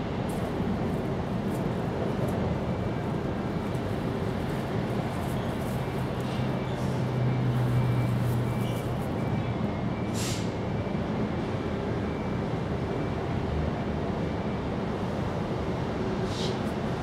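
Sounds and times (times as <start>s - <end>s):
brief hiss: 10.2s - 10.5s.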